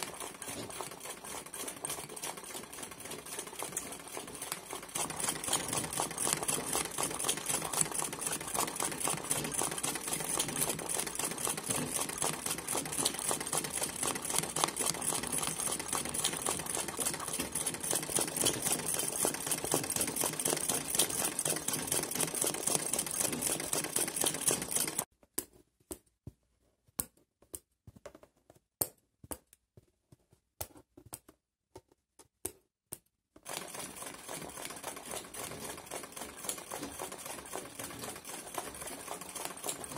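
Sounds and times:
sewing machine stitching: 0:00.0 - 0:25.1, 0:33.4 - 0:39.9.

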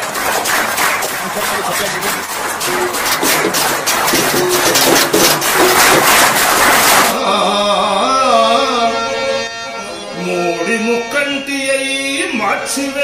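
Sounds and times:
steel plates banging: 0:00.0 - 0:07.1
hands clapping: 0:00.0 - 0:07.2
man singing: 0:07.1 - 0:13.0.

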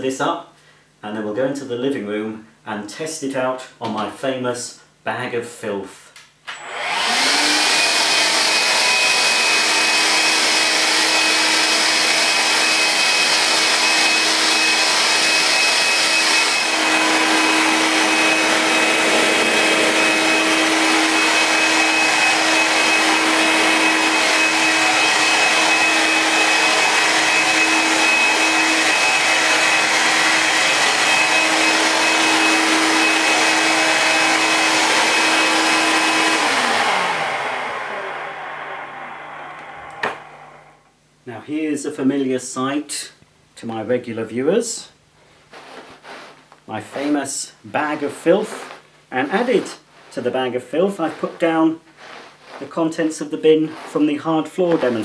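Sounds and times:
vacuum cleaner motor whine: 0:06.5 - 0:40.8.

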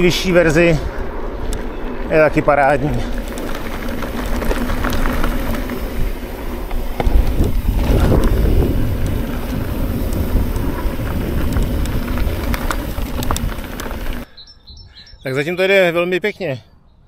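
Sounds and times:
bike tyre noise: 0:00.0 - 0:14.4
wind rumbling on microphone: 0:00.0 - 0:15.1
rattling clicks from bike: 0:02.9 - 0:14.3.

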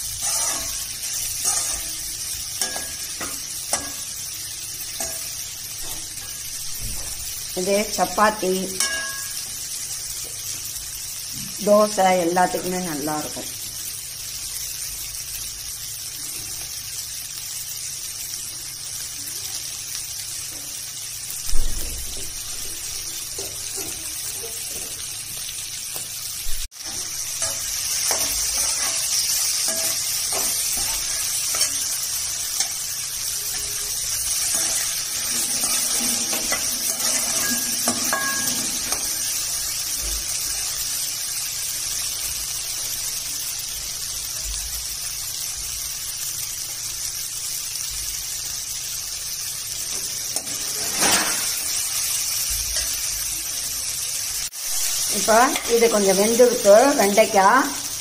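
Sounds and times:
okra sizzling in oil: 0:00.0 - 0:58.0
thump: 0:06.7 - 0:07.2, 0:21.5 - 0:22.4
ladle scraping metal pan: 0:34.5 - 0:39.2, 0:50.4 - 0:51.7.

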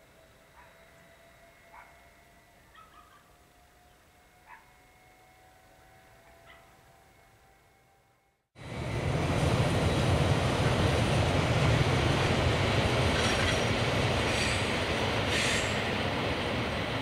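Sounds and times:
train wheels rumbling on rails: 0:08.6 - 0:17.0.

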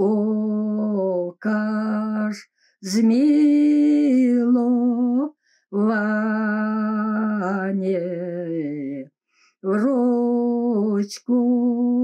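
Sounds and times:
woman singing a hymn: 0:00.0 - 0:12.0
woman breathing: 0:02.5 - 0:02.8, 0:05.3 - 0:05.7, 0:09.2 - 0:09.6.

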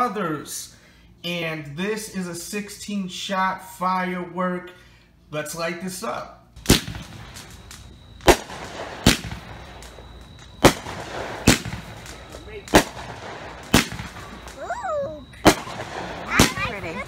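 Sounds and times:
firework bangs: 0:06.6 - 0:17.0.

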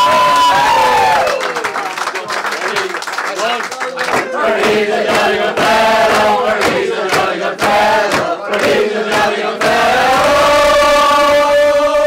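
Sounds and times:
people clapping in time: 0:00.0 - 0:12.0
people chanting and singing: 0:04.1 - 0:12.0.

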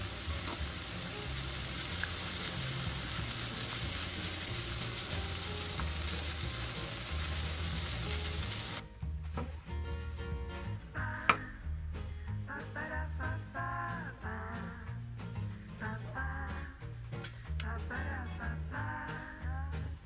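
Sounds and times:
vegetables sizzling in a frying pan: 0:00.0 - 0:08.8
quiet background music: 0:00.0 - 0:20.0.

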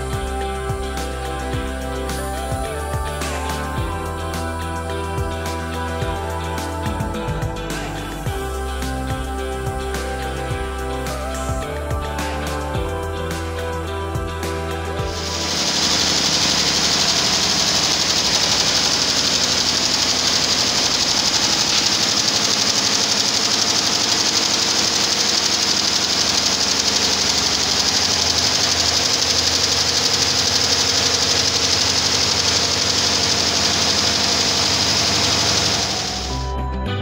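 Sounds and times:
embroidery machine clattering: 0:15.1 - 0:36.4
high hiss: 0:15.1 - 0:36.4.

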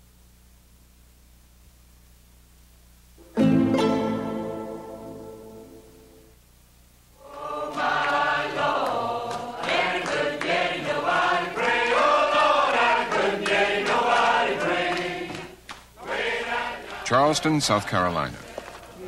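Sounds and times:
mixed choir singing: 0:07.2 - 0:19.0.

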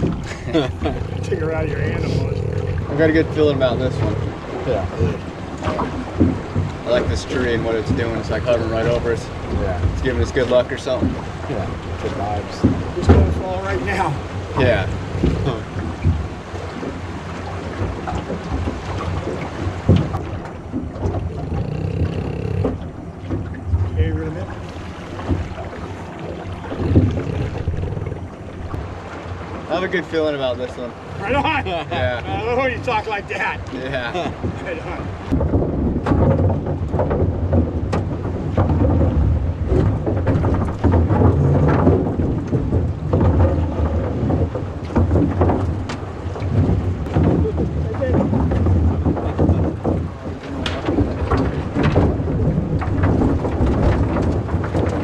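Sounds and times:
river water against boat hull: 0:00.0 - 0:55.0
wind rumbling on microphone: 0:00.0 - 0:55.0
thump: 0:35.3 - 0:55.0.

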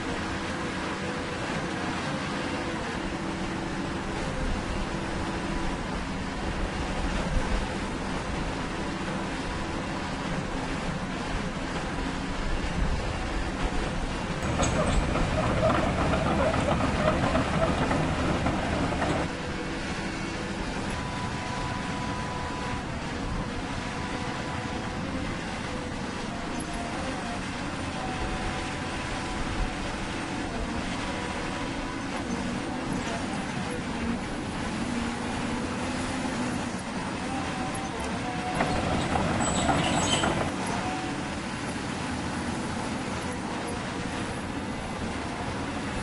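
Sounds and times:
model excavator hydraulic whine: 0:14.4 - 0:19.8, 0:34.9 - 0:41.7.

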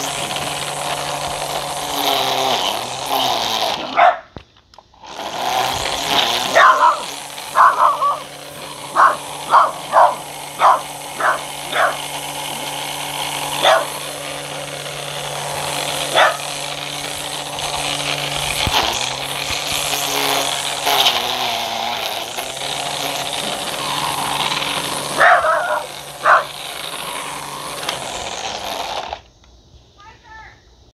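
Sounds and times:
electric string trimmer motor hum: 0:00.0 - 0:29.6
dog barking: 0:04.0 - 0:04.3, 0:06.5 - 0:08.2, 0:09.0 - 0:12.0, 0:13.6 - 0:13.9, 0:16.1 - 0:16.4, 0:25.2 - 0:26.5.

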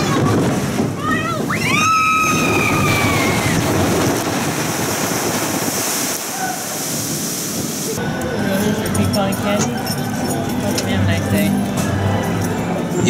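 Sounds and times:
boat splashing down: 0:00.0 - 0:08.0
rushing water: 0:00.0 - 0:10.7.

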